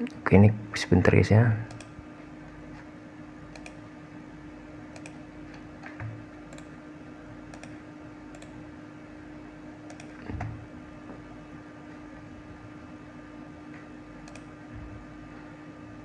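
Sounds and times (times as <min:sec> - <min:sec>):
low electrical hum: 0:00.0 - 0:16.0
computer mouse clicks: 0:01.7 - 0:02.0, 0:03.5 - 0:03.8, 0:04.9 - 0:05.2, 0:05.8 - 0:06.7, 0:07.5 - 0:08.6, 0:09.8 - 0:10.4, 0:14.2 - 0:14.5.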